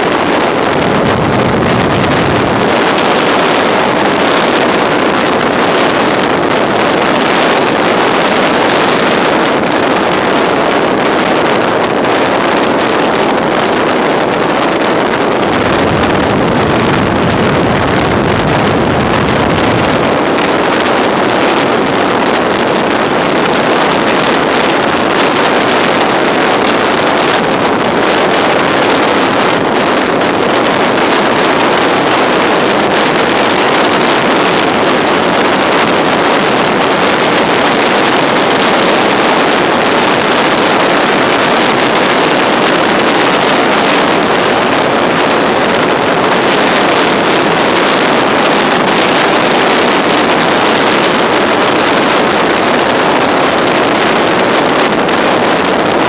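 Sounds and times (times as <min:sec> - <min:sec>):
motorcycle engine: 0:00.0 - 0:10.1, 0:15.0 - 0:27.7
wind rushing over microphone: 0:00.0 - 0:56.0
deep rumble: 0:00.1 - 0:07.1, 0:13.2 - 0:30.8.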